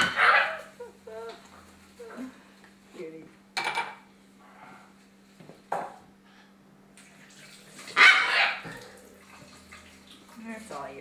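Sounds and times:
macaw squawking: 8.0s - 8.6s.

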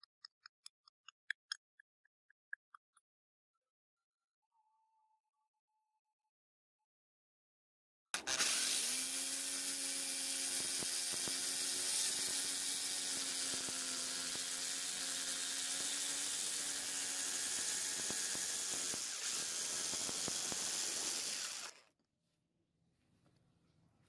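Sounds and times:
electric jigsaw cutting wood: 8.2s - 21.9s.

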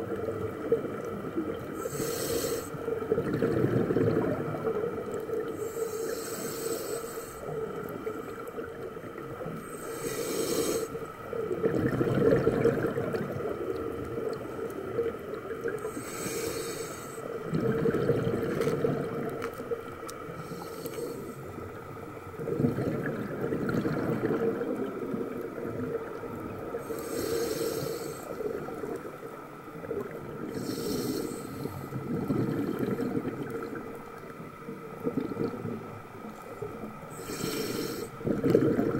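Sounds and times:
regulator inhale hiss: 1.7s - 3.1s, 5.4s - 8.4s, 9.4s - 11.4s, 15.8s - 17.5s, 20.2s - 22.1s, 26.6s - 28.7s, 30.4s - 32.3s, 37.0s - 38.5s
exhaled bubbles rumbling: 2.8s - 5.7s, 11.0s - 16.0s, 17.3s - 20.5s, 21.1s - 27.3s, 28.2s - 37.3s, 38.1s - 38.9s.

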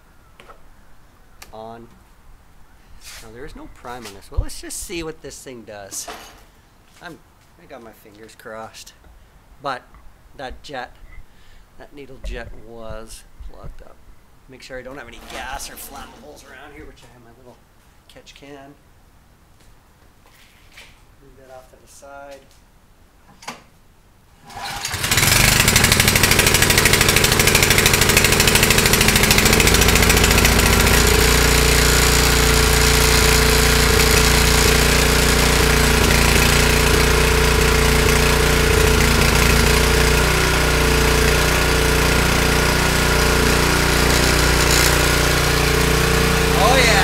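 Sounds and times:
snowblower engine pull-started: 24.4s - 47.0s.

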